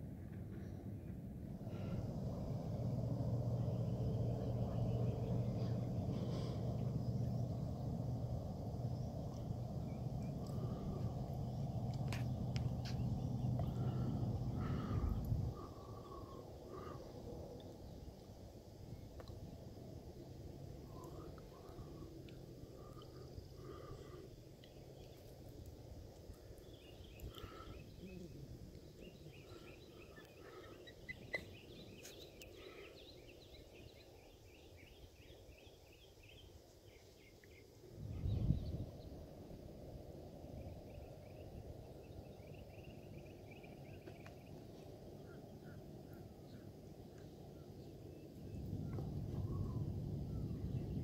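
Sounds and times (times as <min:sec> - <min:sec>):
birds calling: 0:26.6 - 0:33.7.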